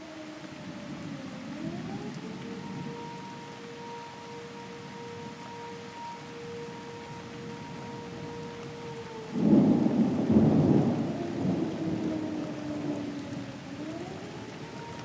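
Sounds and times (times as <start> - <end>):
air raid siren: 0.0 - 15.0
steady rain: 0.0 - 15.0
thunderclap rumbling: 7.4 - 14.8.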